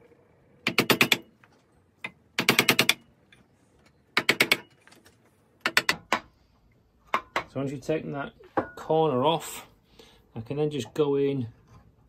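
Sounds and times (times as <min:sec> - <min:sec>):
chisel paring wood: 0:00.6 - 0:01.3, 0:02.0 - 0:03.0, 0:04.2 - 0:04.7, 0:05.6 - 0:06.3.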